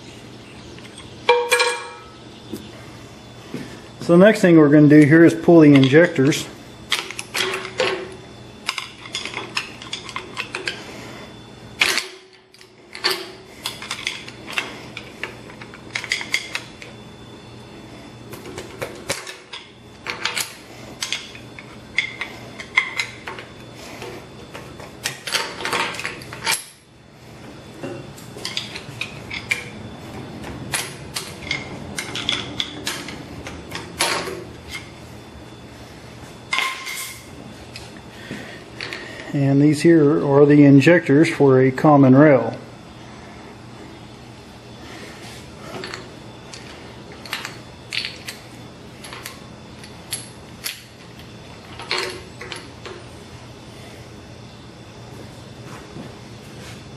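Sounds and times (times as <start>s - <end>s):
metal tools clinking on engine parts: 0.9s - 2.2s, 25.0s - 26.9s, 30.7s - 34.9s.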